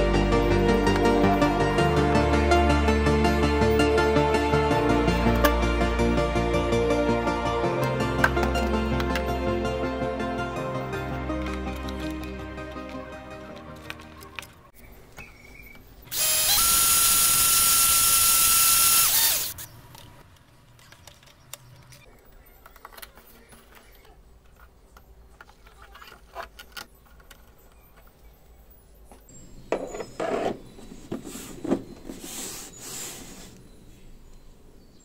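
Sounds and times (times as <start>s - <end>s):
electric drill whining: 16.1s - 19.7s
handling knocks and rubbing: 29.2s - 33.6s.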